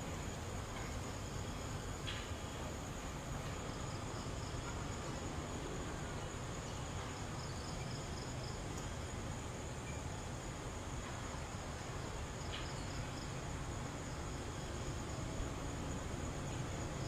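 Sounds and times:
crickets trilling: 0:00.0 - 0:17.0
insect pulsed chirps: 0:06.1 - 0:17.0.

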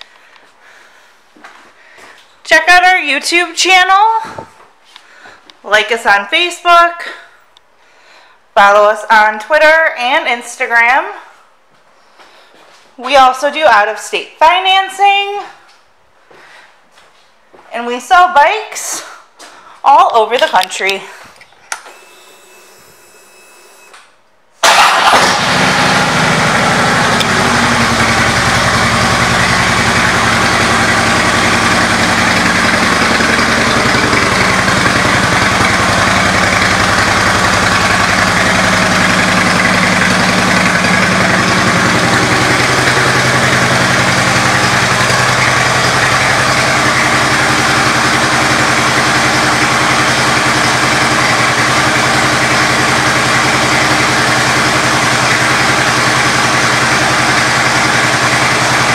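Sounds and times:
motorcycle engine starting and idling: 0:23.7 - 0:58.9.

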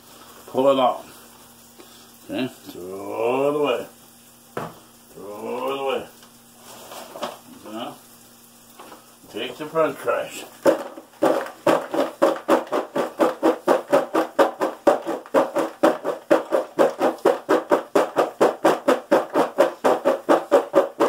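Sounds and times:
fries rattling in plastic bowl: 0:05.4 - 0:07.9, 0:08.8 - 0:21.0.

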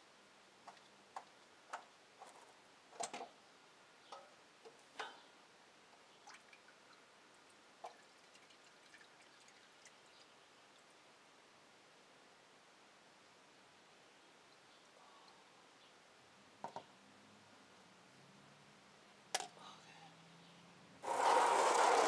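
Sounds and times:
oil dripping into a pan: 0:07.8 - 0:10.2.

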